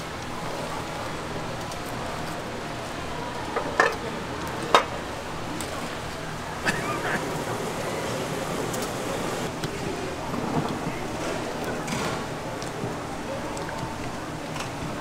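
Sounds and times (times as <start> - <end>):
water boiling and bubbling: 6.6 - 9.5.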